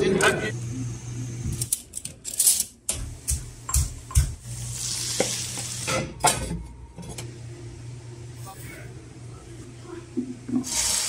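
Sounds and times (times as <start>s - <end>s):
sizzling in a pan: 3.7s - 6.0s, 10.6s - 11.0s.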